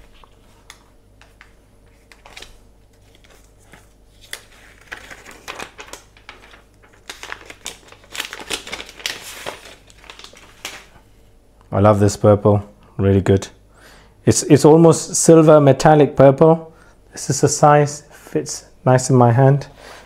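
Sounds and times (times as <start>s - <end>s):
crinkling rustles: 0.0s - 11.1s
protective wrap peeling: 2.0s - 11.0s.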